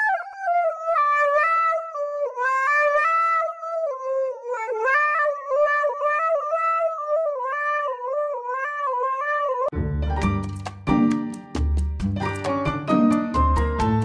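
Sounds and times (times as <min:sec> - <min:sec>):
dog howling into microphone: 0:00.0 - 0:09.7
plucked music with a beat: 0:09.8 - 0:14.0.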